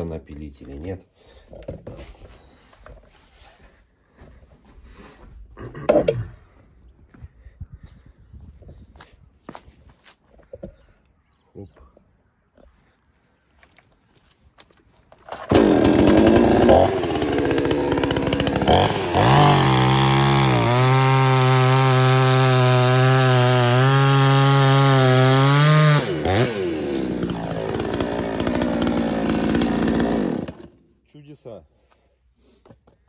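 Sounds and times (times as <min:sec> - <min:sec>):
chainsaw revving and cutting log: 0:15.2 - 0:30.9.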